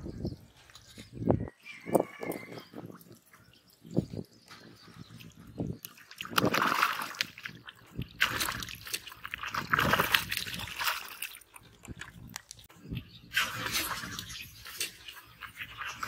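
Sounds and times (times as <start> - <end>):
pond water splashing: 2.6 - 16.0.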